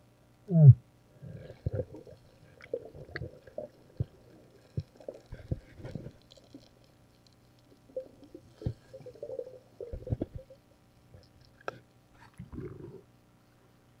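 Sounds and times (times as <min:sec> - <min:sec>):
faint clicks: 0:02.2 - 0:09.0.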